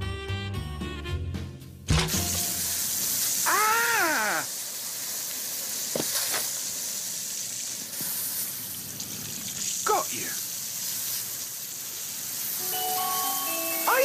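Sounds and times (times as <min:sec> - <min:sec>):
water spraying from hose: 0:01.9 - 0:14.0.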